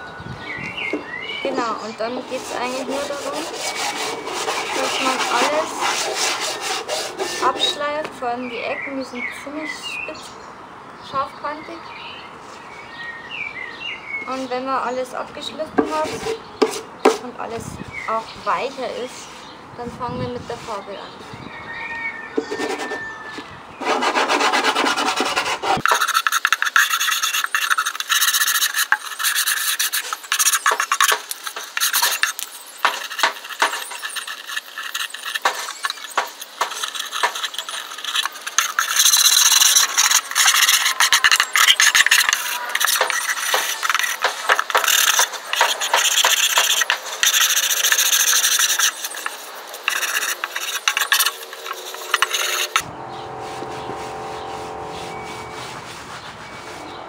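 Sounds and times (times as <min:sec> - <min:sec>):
sandpaper scratching on wood: 0:01.5 - 0:08.0, 0:23.8 - 0:52.8, 0:53.4 - 0:57.0.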